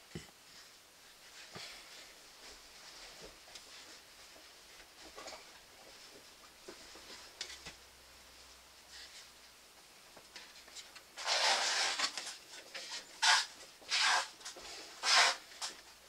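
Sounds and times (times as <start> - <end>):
plastic scraping rustle: 10.6 - 15.8.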